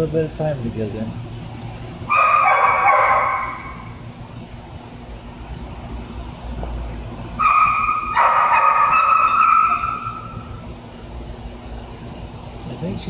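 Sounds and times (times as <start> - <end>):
low steady hum: 0.0 - 13.0
dog barking: 2.1 - 3.9, 7.4 - 10.4
dog whining: 2.1 - 4.0, 7.4 - 10.6.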